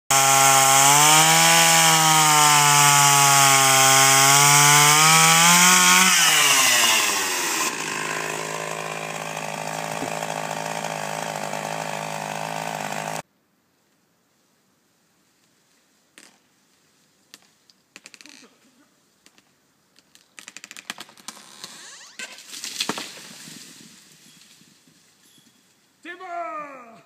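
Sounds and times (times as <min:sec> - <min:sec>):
chainsaw cutting log: 0:00.1 - 0:13.2, 0:20.4 - 0:23.8.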